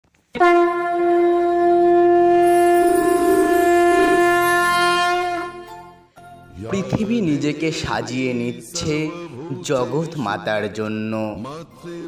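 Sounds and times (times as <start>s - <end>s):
conch shell blown: 0.3s - 6.1s.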